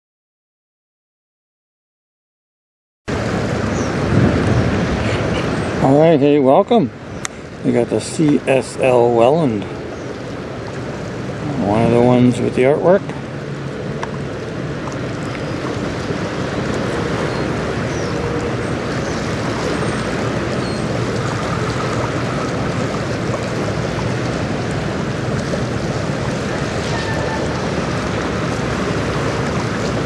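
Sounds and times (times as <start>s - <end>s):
wind on microphone: 3.1s - 6.1s
choppy river waves rushing: 3.1s - 30.0s.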